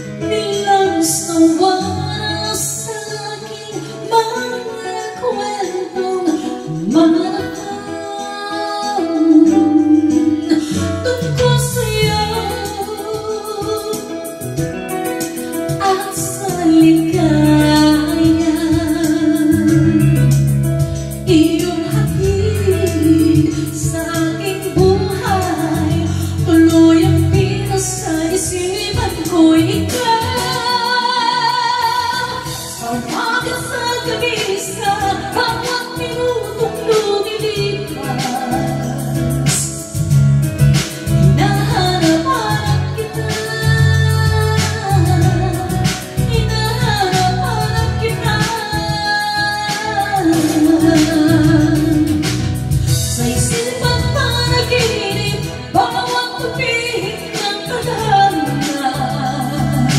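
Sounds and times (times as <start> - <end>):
backing track music: 0.0 - 59.9
woman singing karaoke into microphone: 0.0 - 59.9.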